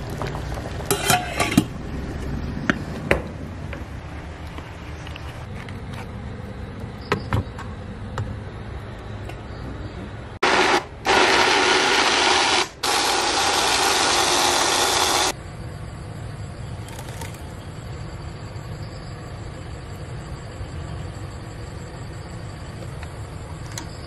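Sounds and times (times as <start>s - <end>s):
electric blender running: 10.4s - 15.3s.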